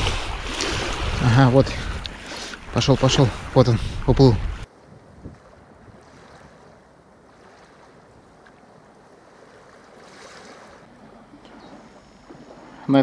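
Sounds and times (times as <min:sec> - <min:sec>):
wind on microphone: 0:00.0 - 0:06.9
small waves lapping: 0:00.0 - 0:13.0.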